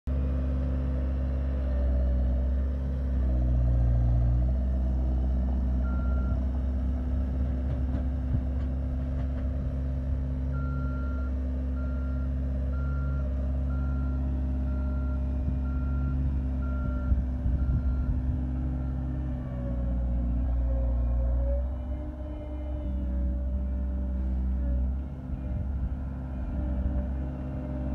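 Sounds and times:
diesel engine running: 0:00.1 - 0:27.9
clunks: 0:07.3 - 0:09.8.

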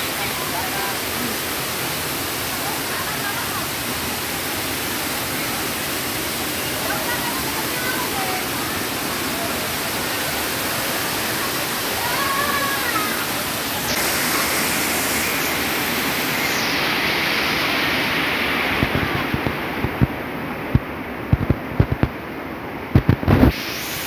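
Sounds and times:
river rushing over rocks: 0:00.0 - 0:24.0.

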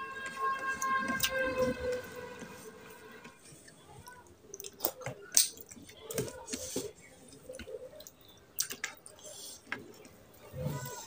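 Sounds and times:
lip smacks and chewing: 0:04.5 - 0:06.6, 0:07.3 - 0:10.2.

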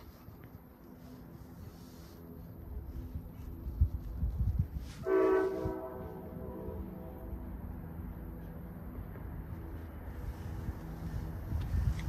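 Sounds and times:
train rumbling: 0:00.0 - 0:12.0
train horn blast: 0:04.9 - 0:07.6.

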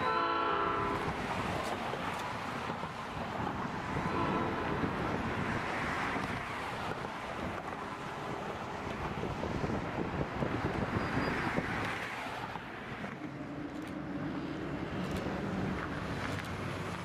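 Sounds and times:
faint train horn: 0:00.0 - 0:01.2, 0:04.0 - 0:05.1
freight train rumbling: 0:00.0 - 0:11.9
wind buffeting microphone: 0:00.8 - 0:17.0.

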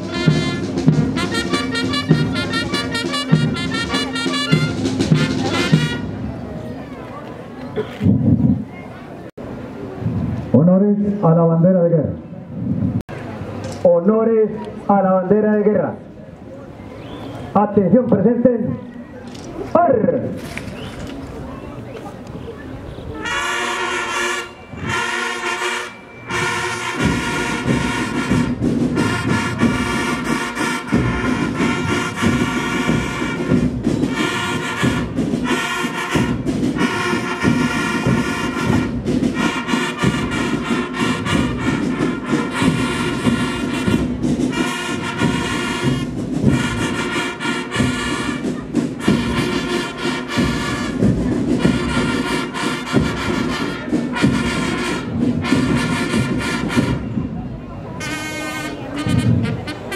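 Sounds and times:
brass band playing: 0:00.0 - 0:06.6, 0:23.0 - 0:59.9
drums: 0:00.0 - 0:07.2, 0:07.8 - 0:08.8, 0:24.6 - 0:59.9.

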